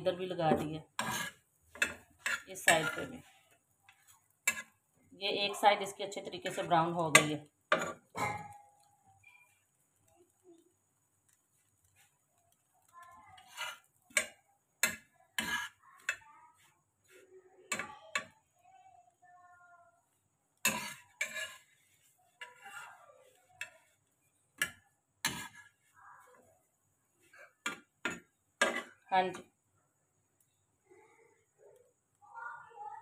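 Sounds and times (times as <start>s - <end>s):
metal tongs clinking on griddle: 1.0s - 3.3s, 6.6s - 9.6s, 12.8s - 16.3s, 17.1s - 18.4s, 20.6s - 24.0s, 27.4s - 29.4s.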